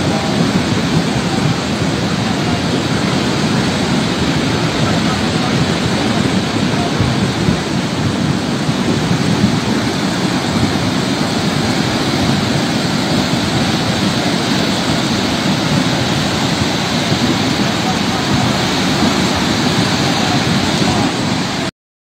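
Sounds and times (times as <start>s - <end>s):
floodwater rushing: 0.0s - 21.7s.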